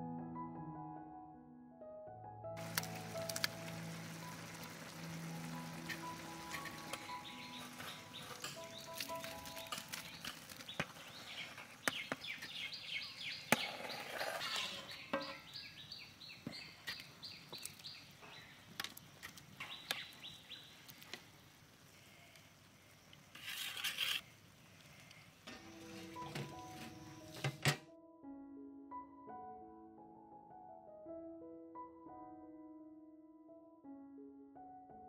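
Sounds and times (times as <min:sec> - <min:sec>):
bird chirping: 0:03.0 - 0:18.7, 0:19.6 - 0:20.9
metal ladle scraping pot: 0:05.9 - 0:11.9, 0:13.9 - 0:15.5.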